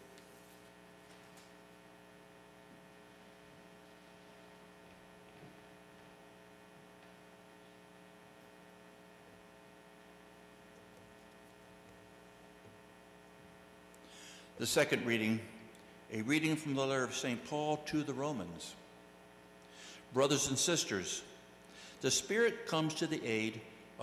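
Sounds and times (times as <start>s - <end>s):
faint electrical hum: 0.0s - 24.0s.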